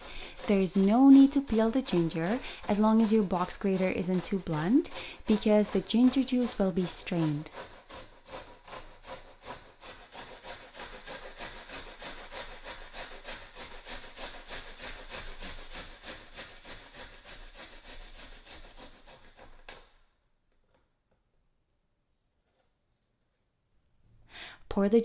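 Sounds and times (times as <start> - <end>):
ginger grating on grater: 0.0 - 19.9.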